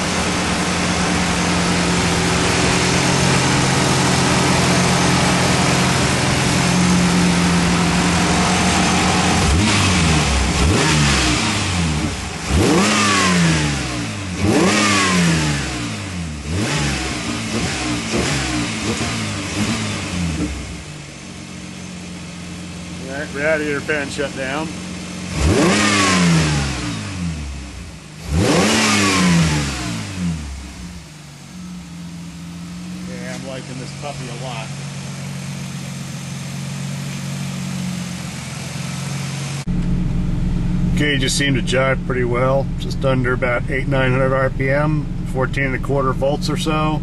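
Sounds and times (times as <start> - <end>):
car engine revving and idling: 0.0 - 47.0.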